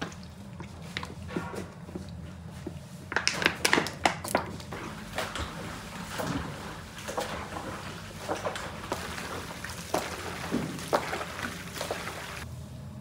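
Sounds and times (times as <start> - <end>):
hands kneading wet meat: 0.0 - 12.4.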